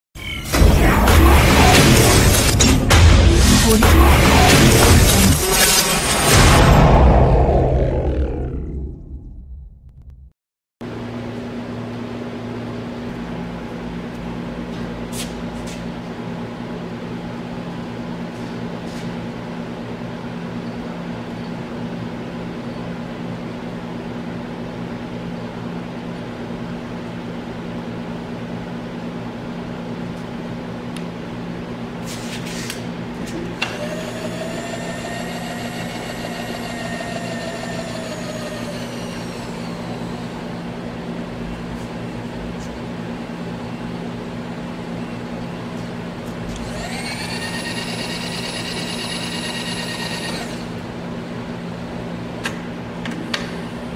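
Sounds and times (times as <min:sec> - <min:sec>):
milling machine electric hum: 0:32.8 - 0:53.9
power-feed motor whine: 0:33.3 - 0:42.6, 0:46.3 - 0:50.8.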